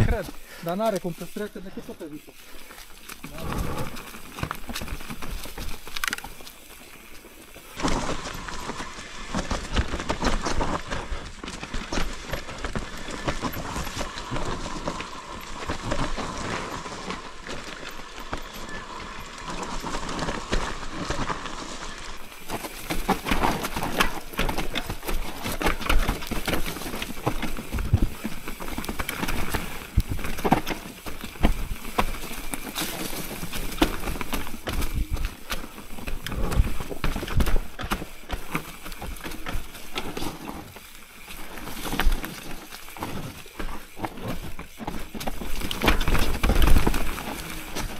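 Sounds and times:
bike clattering and rattling: 0.0s - 47.9s
bike tyres on dirt and leaves: 0.0s - 47.9s.

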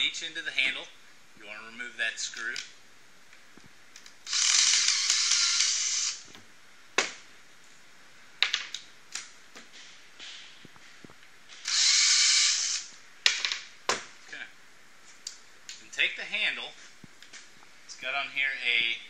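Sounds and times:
cordless drill driving screw: 4.3s - 6.2s, 11.6s - 12.9s.

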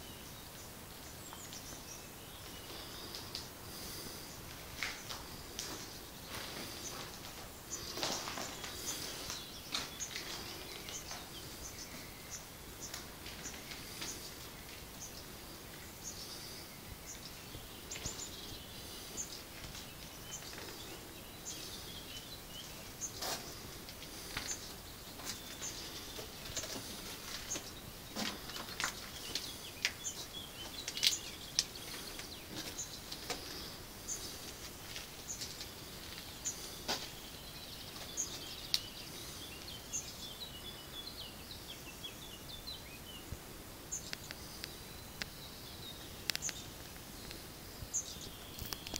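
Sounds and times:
songbirds singing and chirping: 0.0s - 48.9s.

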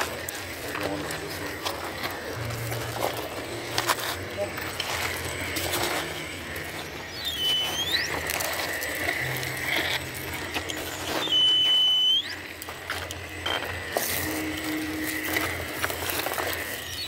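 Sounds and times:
electric motor whining: 0.0s - 17.0s
scattered clicks: 0.0s - 17.0s
high-pitched whine sweeping up: 1.2s - 17.0s.

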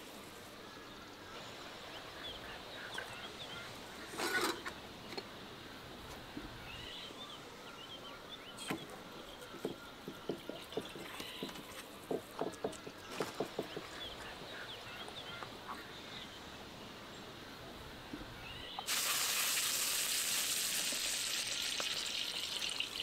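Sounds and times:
small birds chirping: 6.0s - 17.4s.

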